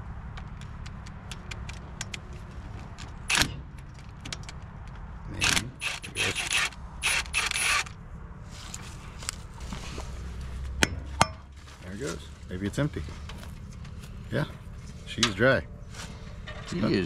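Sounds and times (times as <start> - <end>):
impact driver bursts: 5.4 - 8.0.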